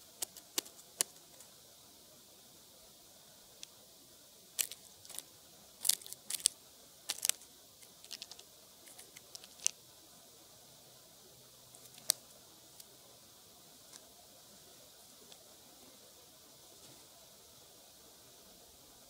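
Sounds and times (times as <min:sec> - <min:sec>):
bird pecking ground: 0:00.0 - 0:01.5, 0:04.6 - 0:09.8, 0:11.7 - 0:13.0.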